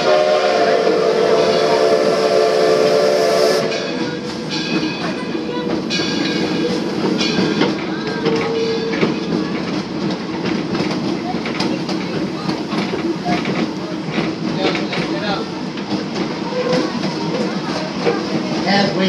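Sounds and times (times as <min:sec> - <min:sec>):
steam whistle blast: 0:00.0 - 0:04.0
train clattering: 0:00.0 - 0:19.0.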